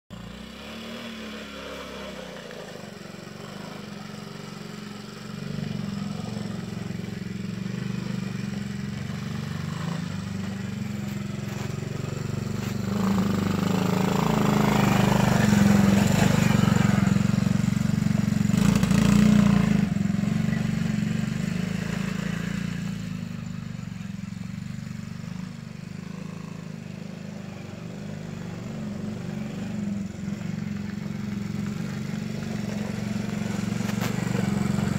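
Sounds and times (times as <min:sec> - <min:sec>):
mini atv engine droning: 0:00.1 - 0:34.9.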